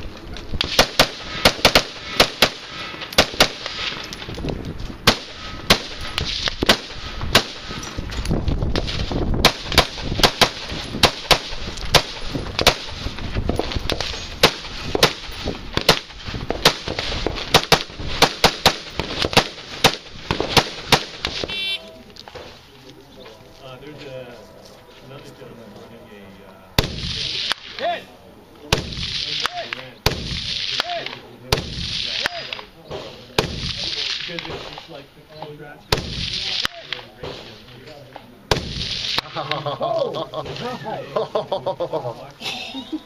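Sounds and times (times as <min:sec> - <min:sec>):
rifle firing rapidly: 0:00.6 - 0:02.6, 0:09.4 - 0:13.0.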